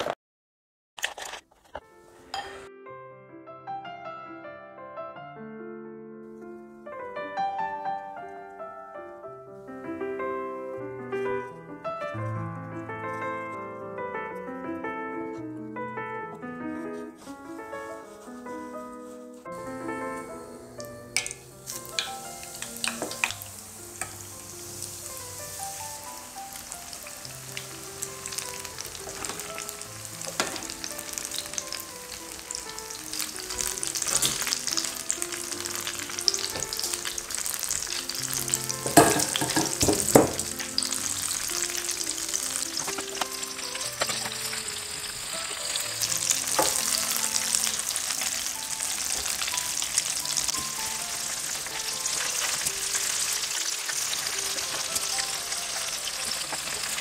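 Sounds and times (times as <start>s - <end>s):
food deep-frying in oil: 21.1s - 57.0s
spoon knocking against pot: 38.9s - 40.5s.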